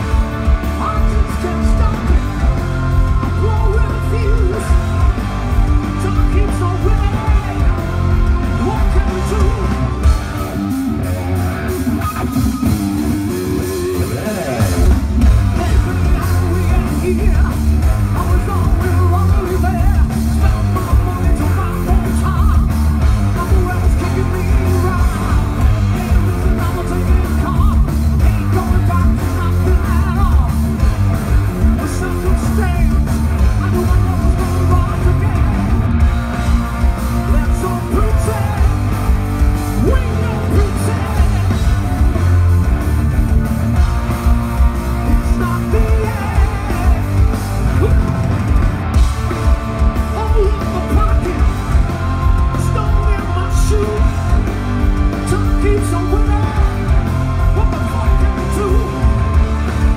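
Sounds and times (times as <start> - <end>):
hard rock band playing live: 0.0 - 59.9
person singing: 0.6 - 10.1, 39.8 - 42.3, 45.0 - 48.2, 50.1 - 59.2.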